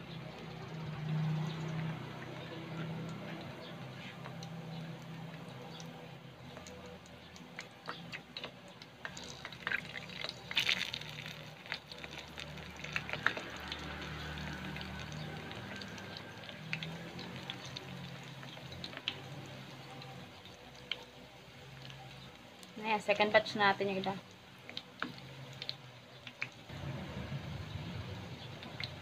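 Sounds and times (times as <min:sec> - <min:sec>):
food sizzling in hot oil: 0:06.5 - 0:29.0.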